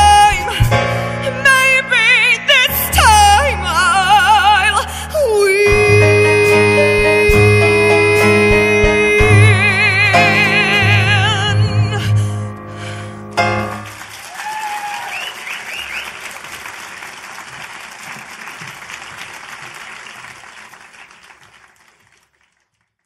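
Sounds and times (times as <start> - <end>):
audience applauding and cheering: 13.6 - 23.0.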